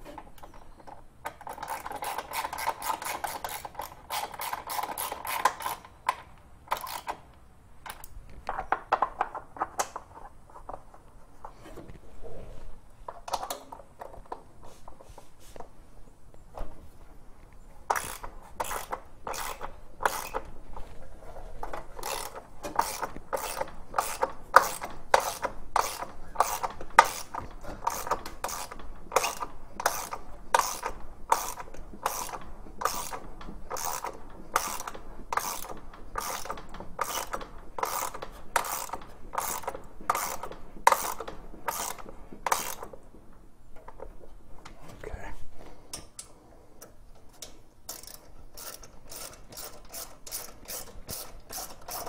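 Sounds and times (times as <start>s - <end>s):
ratchet wrench clicking: 1.4s - 7.2s, 17.9s - 20.5s, 21.7s - 42.9s, 47.3s - 52.0s.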